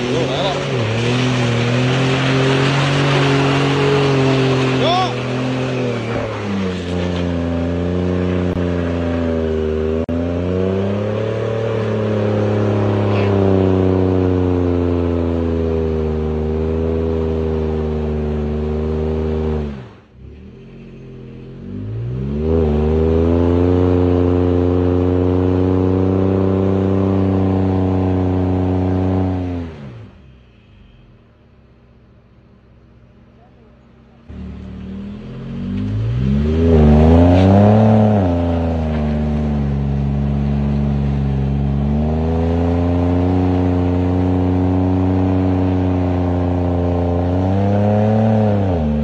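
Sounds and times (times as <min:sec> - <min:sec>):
wheels spinning in mud: 0:00.0 - 0:18.8
truck engine revving: 0:00.0 - 0:30.2, 0:33.6 - 0:49.0.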